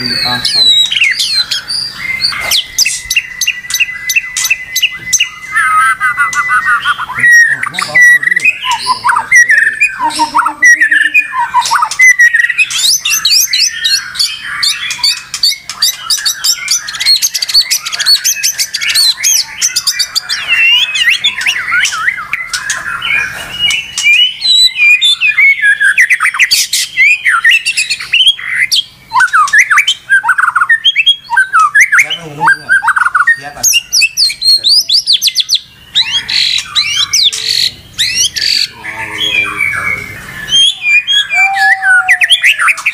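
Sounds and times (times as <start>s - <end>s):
fast high bird trills: 0.0s - 42.9s
songbird whistles and chirps: 0.0s - 42.9s.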